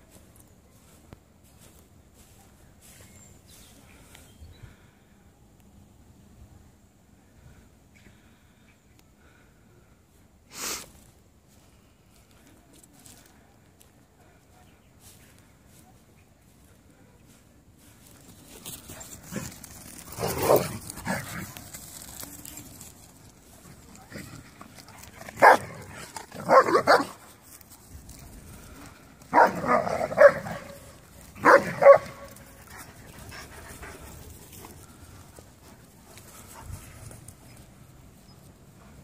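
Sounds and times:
dogs barking in play: 0:19.0 - 0:21.6, 0:24.0 - 0:27.2, 0:29.3 - 0:33.5.

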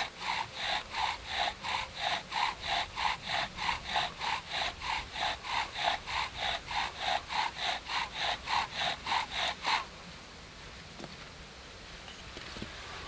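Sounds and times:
wooden spindle rubbing in hearth board: 0:00.0 - 0:09.9.

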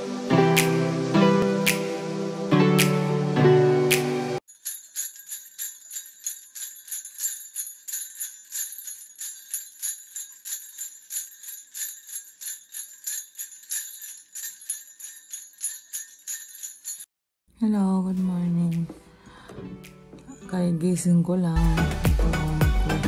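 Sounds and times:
jingle bells shaken: 0:04.4 - 0:17.1.

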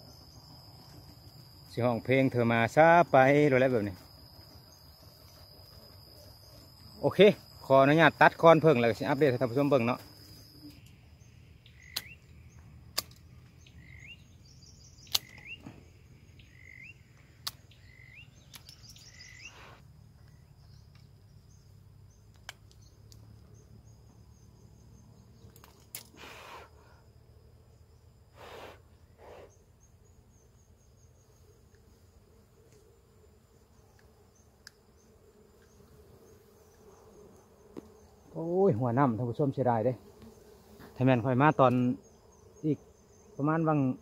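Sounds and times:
faint insect whine: 0:00.0 - 0:44.0
pruning shears snipping: 0:12.9 - 0:13.2
rising bird chirps: 0:13.6 - 0:20.9.

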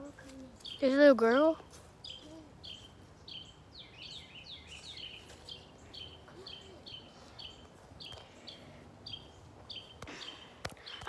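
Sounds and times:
bird chirping: 0:00.3 - 0:11.0
lower bird chirps: 0:00.4 - 0:11.0.

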